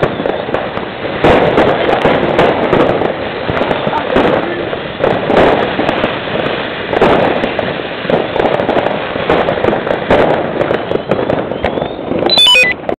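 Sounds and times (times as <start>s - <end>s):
firework fountain hissing: 0.0s - 13.0s
fireworks bangs and crackles: 0.0s - 13.0s
faint rising whistle: 11.5s - 12.8s
falling run of beeps: 12.2s - 12.8s.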